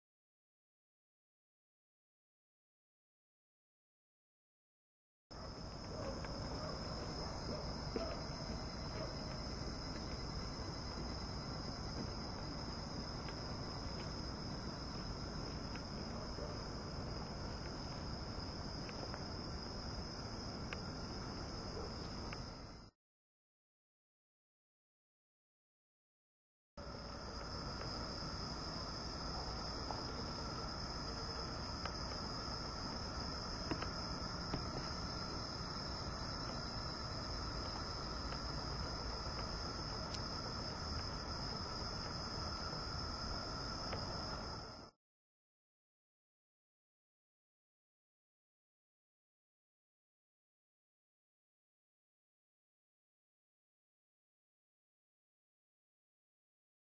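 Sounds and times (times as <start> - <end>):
crickets trilling: 5.4 - 22.9, 26.8 - 44.9
insects chirring: 5.4 - 22.9, 26.8 - 44.9.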